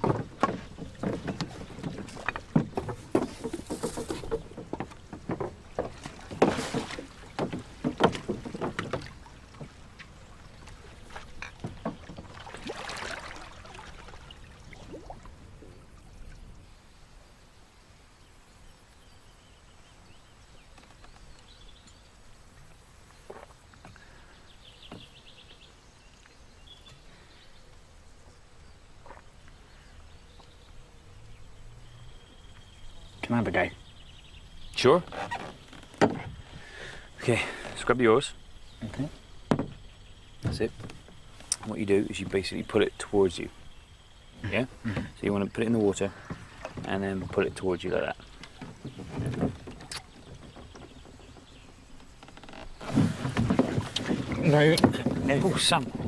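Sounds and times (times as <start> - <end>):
wooden knocks: 0.0 - 10.1, 11.1 - 12.6, 34.8 - 36.5, 38.9 - 41.8, 48.3 - 56.0
water splashes: 0.0 - 17.5, 28.4 - 56.0.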